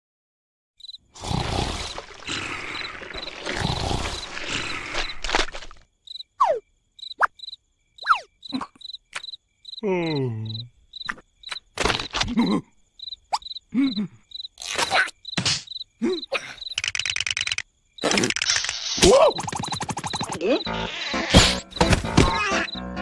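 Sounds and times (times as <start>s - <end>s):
crickets chirping: 0.8s - 23.0s
cartoon wordless vocal noises: 9.8s - 10.8s, 13.7s - 15.1s, 16.0s - 16.6s, 19.0s - 19.6s, 20.3s - 21.4s, 22.2s - 23.0s.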